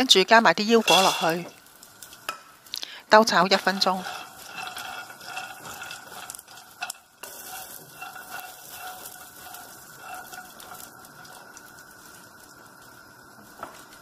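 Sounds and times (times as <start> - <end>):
food sizzling in a pan: 0.0 - 14.0
spatula scraping pan: 0.8 - 1.6, 3.2 - 11.7.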